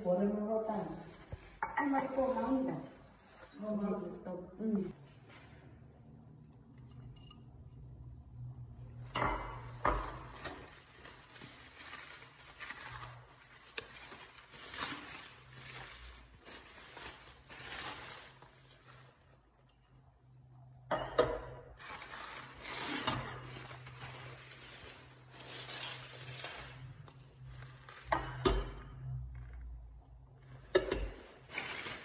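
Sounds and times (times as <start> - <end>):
bubble wrap crinkling: 10.2 - 19.3, 21.8 - 28.1, 31.2 - 32.0.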